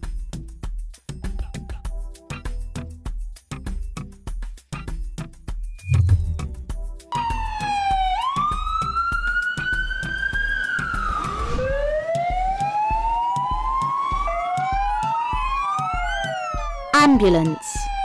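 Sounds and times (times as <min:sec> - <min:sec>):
background music beat: 0:00.1 - 0:10.2
emergency sirens wailing: 0:07.1 - 0:18.0.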